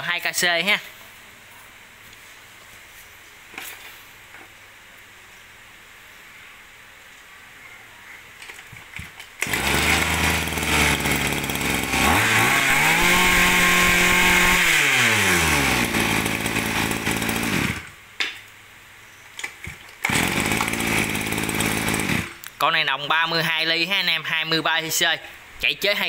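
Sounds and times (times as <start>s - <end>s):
brush cutter engine revving: 9.4s - 17.9s, 20.0s - 22.4s.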